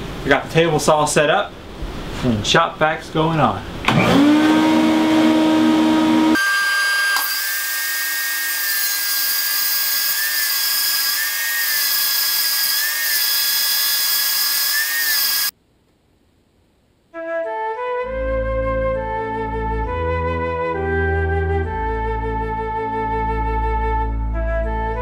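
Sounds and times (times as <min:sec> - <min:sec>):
table saw cutting a board: 0:03.9 - 0:15.5
flute music: 0:17.2 - 0:25.0.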